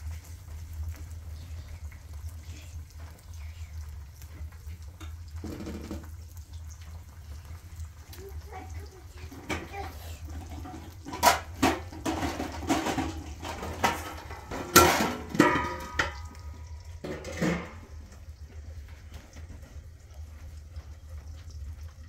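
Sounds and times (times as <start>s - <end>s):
metal pots clanking: 9.1s - 19.9s.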